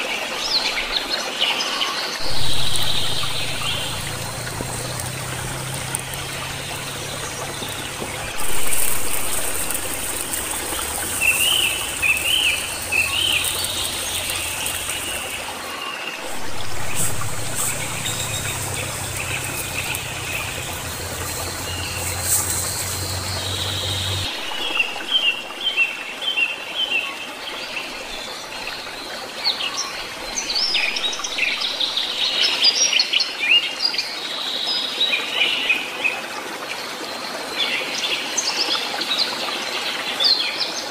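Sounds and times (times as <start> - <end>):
small birds chirping: 2.2 - 26.0
steady watery hiss: 2.2 - 26.2, 30.1 - 32.4.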